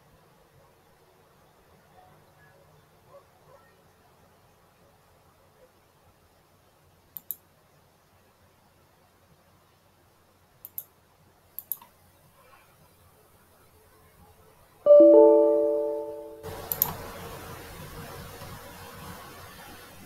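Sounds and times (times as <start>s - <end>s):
computer mouse clicking: 7.2s - 7.4s, 10.6s - 10.9s, 11.6s - 11.9s
two-note electronic alert chime: 14.9s - 16.4s
steady hiss: 16.5s - 20.0s.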